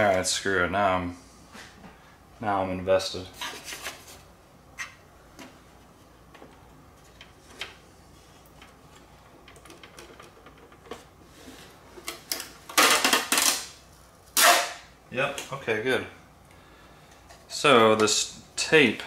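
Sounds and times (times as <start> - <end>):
plastic snapping: 12.0 - 13.7.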